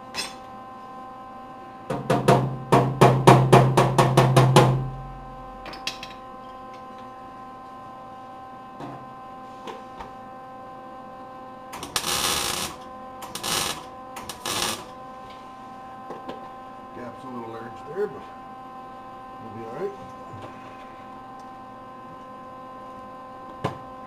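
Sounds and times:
electrical hum: 0.0s - 24.0s
hammer tapping on metal panel: 1.9s - 5.0s
welder bursts: 11.8s - 14.9s.

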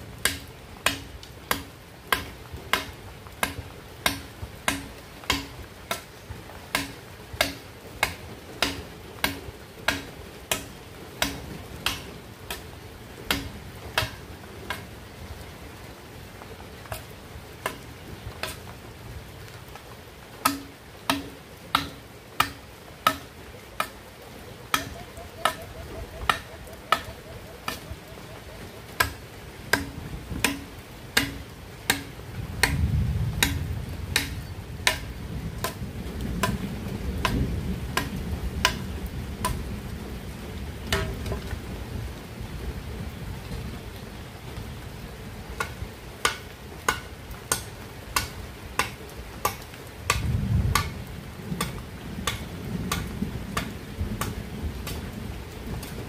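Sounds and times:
knife chopping bamboo: 0.2s - 6.0s, 6.7s - 12.6s, 29.0s - 32.8s, 34.2s - 35.8s
thunder rumble: 32.2s - 44.0s, 50.2s - 56.0s.

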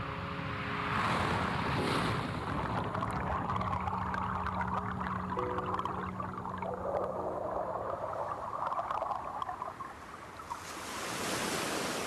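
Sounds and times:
underwater crackling and gurgling: 2.3s - 10.8s.

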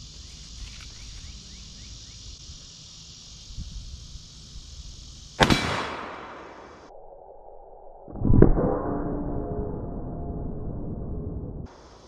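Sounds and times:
insects buzzing: 0.0s - 6.9s, 11.7s - 12.0s
loud revolver shot with echo: 5.4s - 6.8s.

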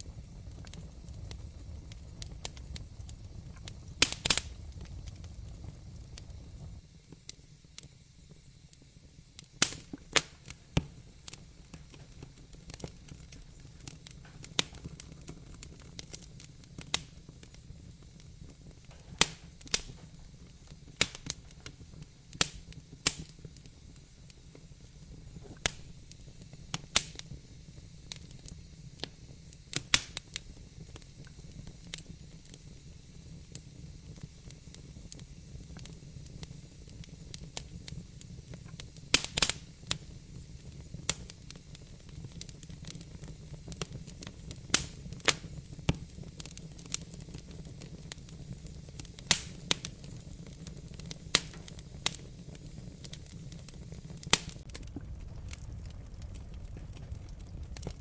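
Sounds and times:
low rumble: 0.0s - 6.8s, 54.6s - 58.0s
wood fire crackling: 0.0s - 8.8s, 9.4s - 58.0s.

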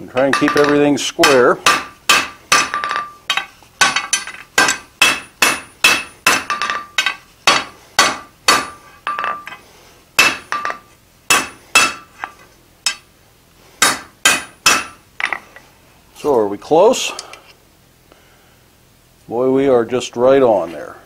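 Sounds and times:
hammer striking iron on anvil: 0.1s - 9.6s, 10.2s - 12.3s, 12.9s - 13.1s, 13.8s - 15.4s.

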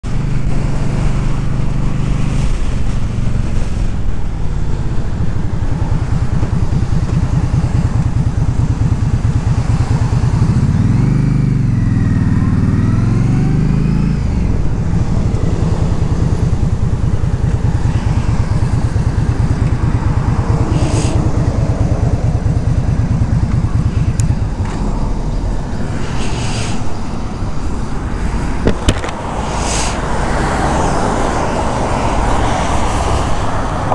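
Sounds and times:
motorcycle engine running: 0.0s - 29.3s
wind rush over microphone: 13.1s - 33.9s.

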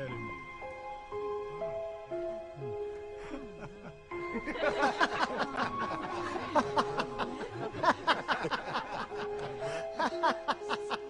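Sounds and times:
music with long held notes: 0.0s - 11.0s
crowd laughing: 3.2s - 11.0s.

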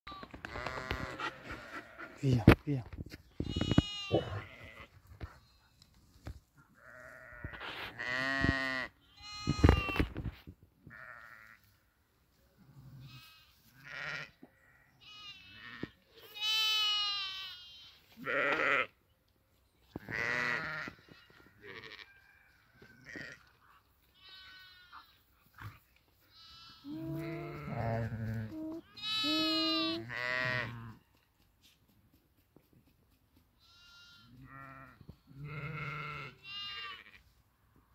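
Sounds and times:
sheep bleating: 0.2s - 2.4s, 3.4s - 5.0s, 6.8s - 10.1s, 10.9s - 11.7s, 13.0s - 18.9s, 20.0s - 22.1s, 24.2s - 25.7s, 26.3s - 31.0s, 33.6s - 37.2s.

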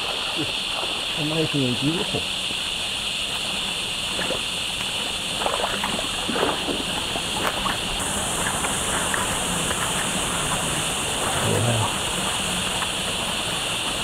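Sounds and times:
creek water running: 0.0s - 14.0s
steady high hiss: 0.0s - 14.0s.

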